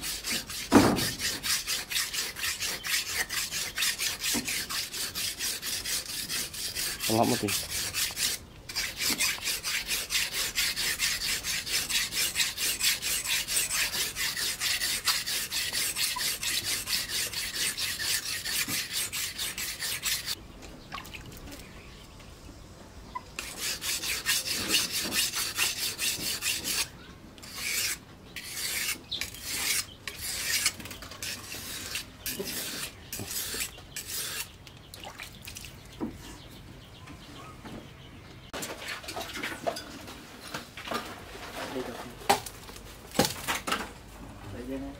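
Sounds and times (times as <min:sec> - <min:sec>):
knife scraping on whetstone: 0:00.0 - 0:20.4, 0:23.4 - 0:34.5.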